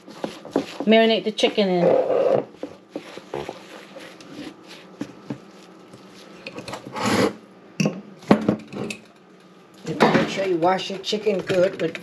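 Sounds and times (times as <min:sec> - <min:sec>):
flour rustling: 0:00.0 - 0:06.4
plastic glove crinkling: 0:00.0 - 0:06.4.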